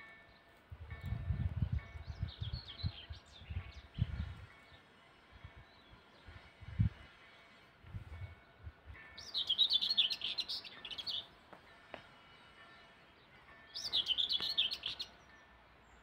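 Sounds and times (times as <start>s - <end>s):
songbird warbling chirps: 2.0s - 4.2s, 9.2s - 11.4s, 13.7s - 15.5s.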